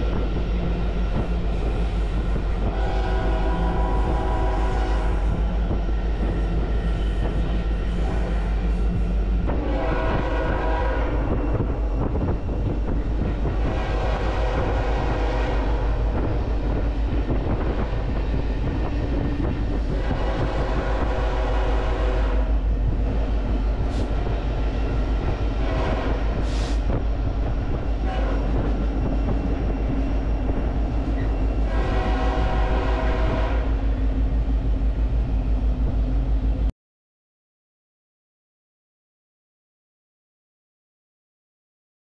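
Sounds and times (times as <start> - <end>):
locomotive horn blasts: 2.7 - 5.2, 9.6 - 11.3, 13.6 - 15.7, 20.0 - 22.6, 25.6 - 26.6, 28.1 - 28.5, 31.6 - 33.8.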